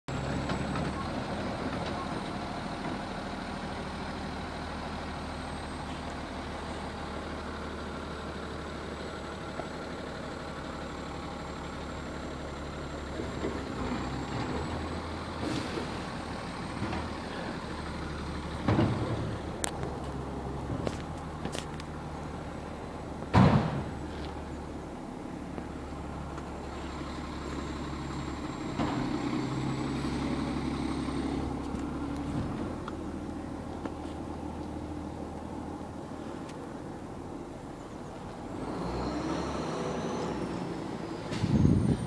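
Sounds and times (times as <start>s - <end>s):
diesel truck engine running: 0.1s - 42.0s
loud thump: 23.3s - 24.0s.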